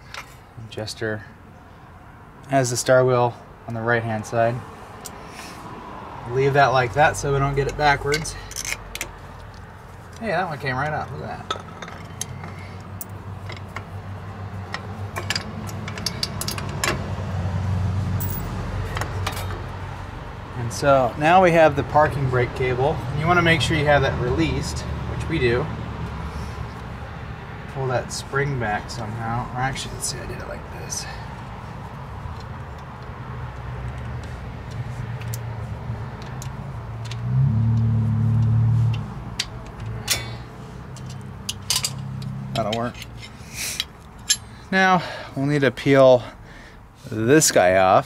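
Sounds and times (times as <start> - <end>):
metal brake parts clicking: 7.6 - 10.2, 14.6 - 17.0, 36.2 - 37.2, 37.8 - 44.6.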